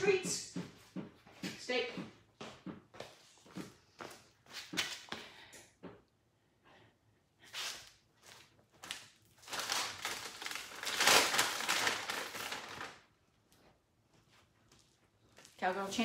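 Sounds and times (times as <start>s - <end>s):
packaging crinkling and rustling: 8.8s - 13.1s.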